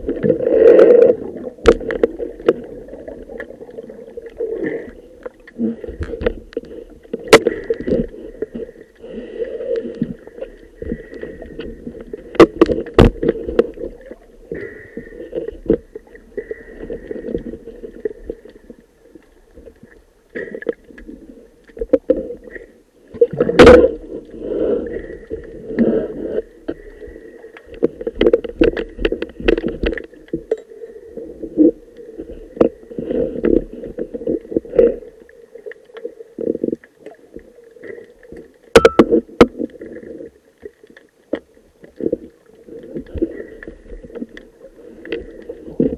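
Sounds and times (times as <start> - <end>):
underwater breathing bubbles: 0.0 - 18.8, 20.3 - 30.1.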